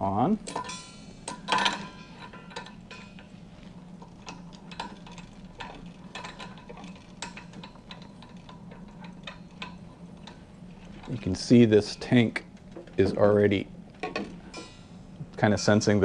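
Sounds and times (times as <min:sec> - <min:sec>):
loud metal clink: 0:00.5 - 0:03.2
small metallic clicks and scrapes: 0:00.5 - 0:13.2.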